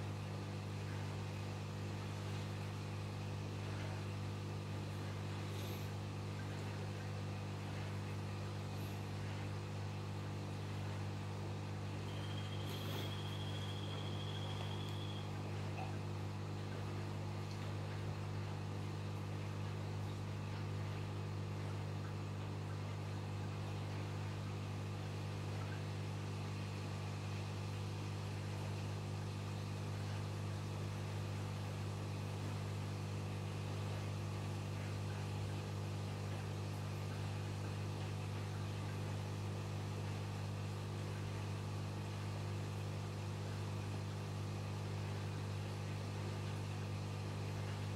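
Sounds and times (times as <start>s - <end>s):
aquarium pump humming: 0.0s - 47.9s
high steady tone: 12.0s - 15.4s.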